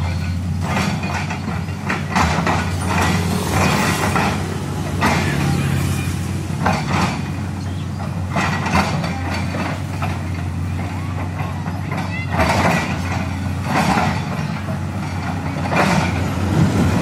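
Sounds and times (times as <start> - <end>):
diesel engine humming: 0.0 - 17.0
bucket scraping and clanking: 0.1 - 7.5.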